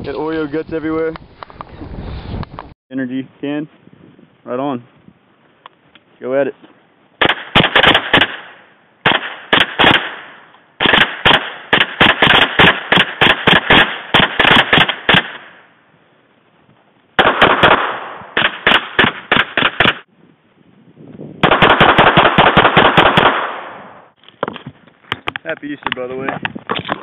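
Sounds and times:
rapid small-calibre gunshots: 7.2 - 15.6, 17.2 - 20.1, 21.4 - 24.1.

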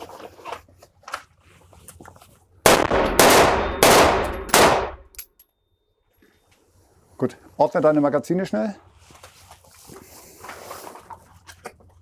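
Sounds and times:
rifle shots echoing indoors: 2.6 - 5.2.

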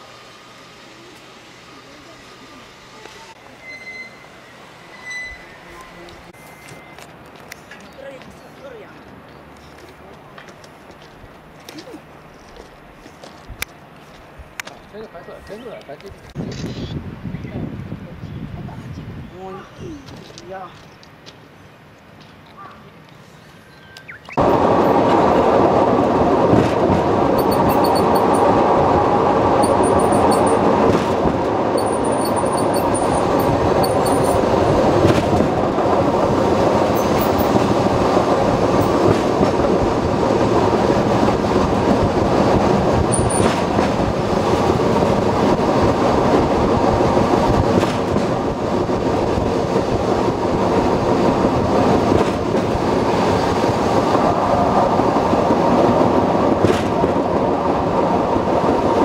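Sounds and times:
wheels rumbling on rail: 0.0 - 16.4, 17.1 - 59.0
faint high squeaks: 3.1 - 7.1, 27.4 - 28.5, 31.8 - 34.4.

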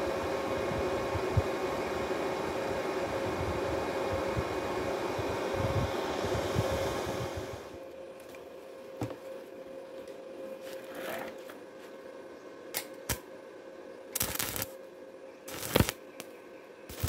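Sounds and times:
faint steady hum: 0.0 - 17.0
welding arc crackle: 12.8 - 13.2, 14.2 - 14.8, 15.5 - 16.0.

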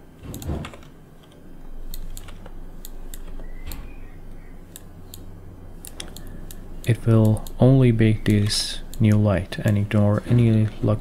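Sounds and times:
low steady hum: 0.0 - 11.0
keyboard and mouse clicks: 0.2 - 7.6.

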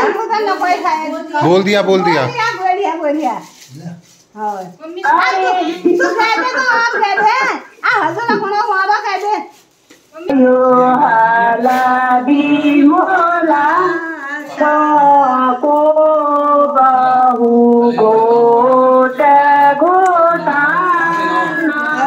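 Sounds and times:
woman singing over small speaker: 4.6 - 9.2, 10.2 - 22.0.

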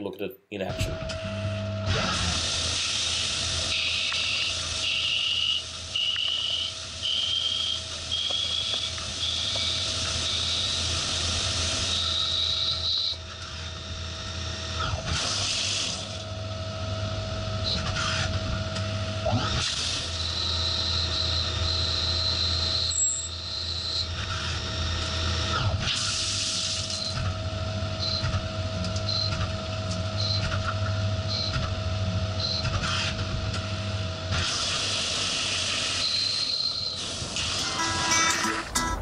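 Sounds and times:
machine hum: 0.6 - 14.8
high cutting whine: 37.3 - 39.0.

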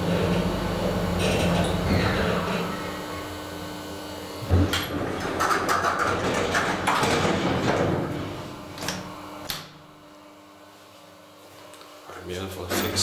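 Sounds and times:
elevator running hum: 0.0 - 10.0
elevator doors sliding and rattling: 4.5 - 8.4.

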